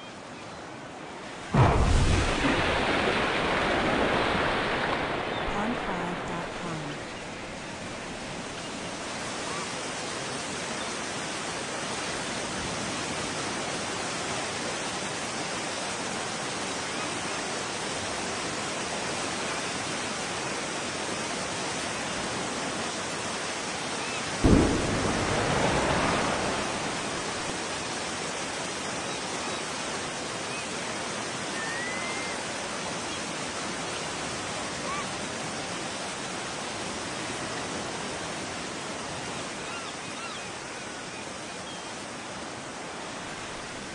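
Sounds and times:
deep explosion boom: 1.6 - 3.2, 24.4 - 27.5
steady rushing noise: 24.4 - 28.5.

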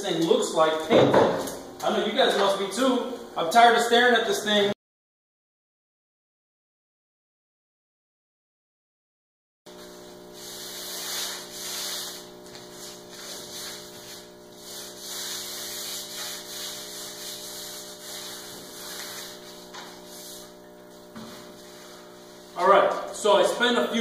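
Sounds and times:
low electrical hum: 0.0 - 4.8, 9.7 - 24.0
sandpaper rubbing on wood: 9.9 - 20.6.

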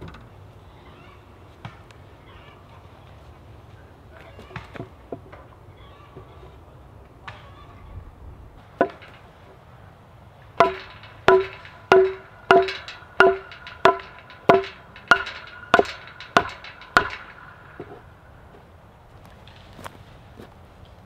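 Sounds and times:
hammer blows ringing: 8.8 - 9.4, 10.6 - 18.5.

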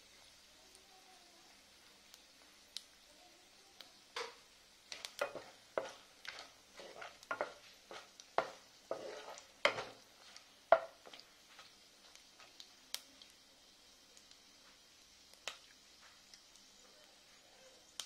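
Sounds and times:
spices sizzling in oil: 0.0 - 18.0
spatula scraping a pan: 4.9 - 11.7.

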